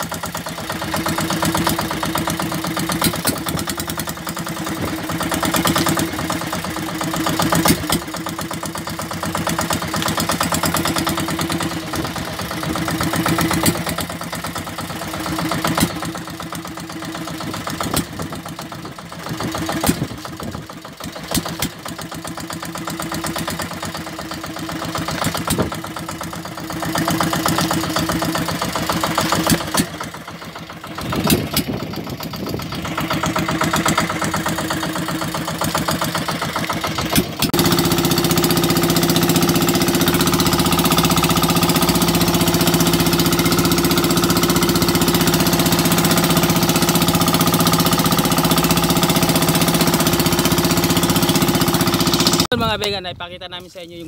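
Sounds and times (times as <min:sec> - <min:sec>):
engine knocks: 0:00.0 - 0:52.9
boat engine running: 0:00.0 - 0:54.0.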